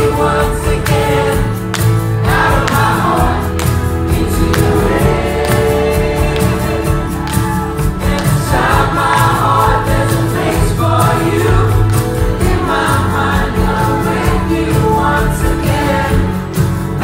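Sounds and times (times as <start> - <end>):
drum beat: 0.0 - 16.4
acoustic guitar: 0.0 - 17.0.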